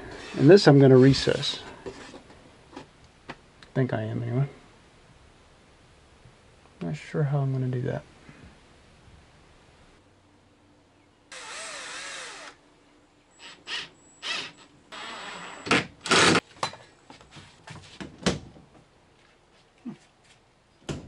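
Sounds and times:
cordless drill driving screws: 0:00.1 - 0:00.5, 0:11.3 - 0:12.6, 0:13.4 - 0:16.4.

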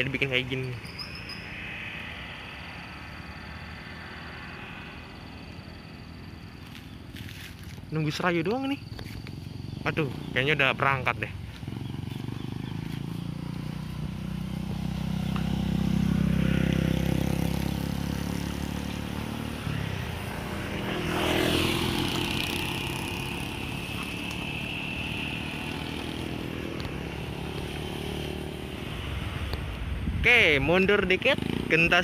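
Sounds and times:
steady high tone: 0:00.0 - 0:06.8
engine hum: 0:00.0 - 0:32.0
motorcycle passing: 0:00.0 - 0:32.0.

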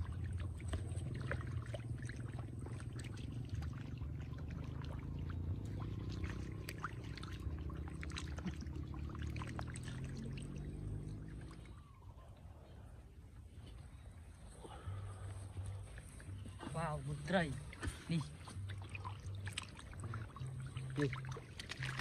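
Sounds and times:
fish thrashing and splashing: 0:00.0 - 0:11.6, 0:17.5 - 0:22.0
water pouring and churning: 0:00.0 - 0:12.1, 0:14.3 - 0:22.0.

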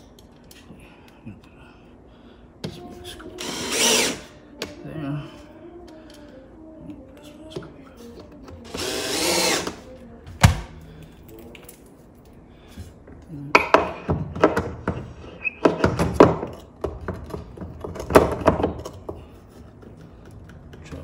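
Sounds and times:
cordless drill whirring: 0:03.4 - 0:04.3, 0:08.7 - 0:09.8.

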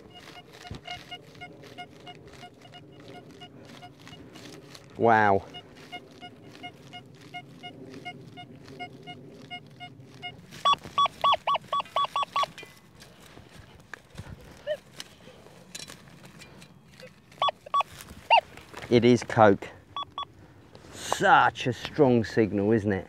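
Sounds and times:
metal detector beeps: 0:00.0 - 0:12.7, 0:17.0 - 0:18.5, 0:19.9 - 0:20.3.

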